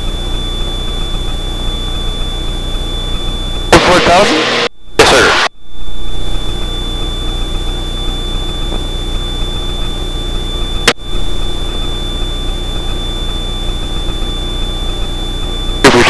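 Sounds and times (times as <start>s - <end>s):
aircraft engine droning: 0.0s - 16.0s
high thin whine: 3.7s - 9.9s, 10.8s - 16.0s.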